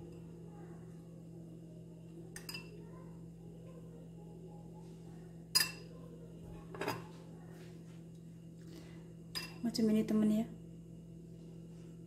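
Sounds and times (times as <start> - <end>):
steady low hum: 0.0 - 12.0
metal spoon clinking on dishes: 2.4 - 2.8, 5.5 - 5.9, 9.3 - 9.6.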